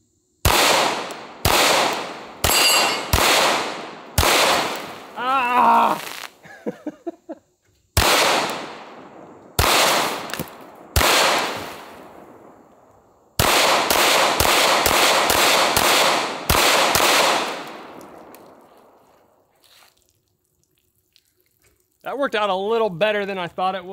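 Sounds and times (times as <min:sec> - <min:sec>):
pistol shots echoing: 0:00.4 - 0:05.2, 0:08.0 - 0:12.5, 0:13.4 - 0:19.0.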